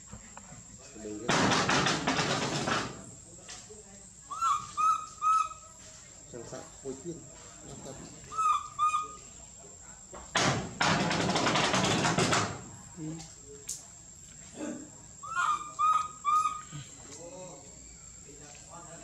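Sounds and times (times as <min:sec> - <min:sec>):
baby monkey cooing: 0:04.3 - 0:05.7, 0:08.3 - 0:09.2, 0:15.2 - 0:17.0.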